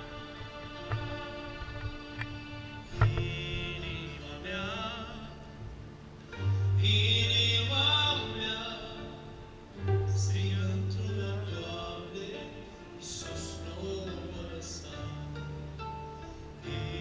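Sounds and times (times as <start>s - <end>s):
violin playing with vibrato: 0.0s - 5.6s, 6.3s - 14.6s
man singing through microphone: 2.7s - 5.7s, 6.7s - 15.6s, 16.6s - 17.0s.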